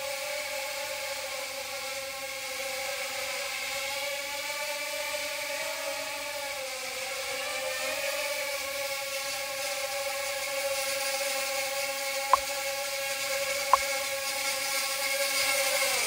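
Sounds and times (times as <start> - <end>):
quadcopter motors whining: 0.0 - 16.0.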